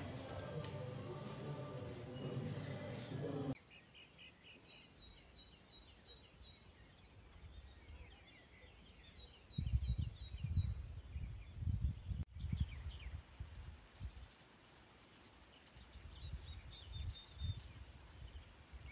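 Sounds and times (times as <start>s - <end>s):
birds twittering: 0.0s - 13.2s
wind buffeting microphone: 9.4s - 14.2s, 15.9s - 18.9s.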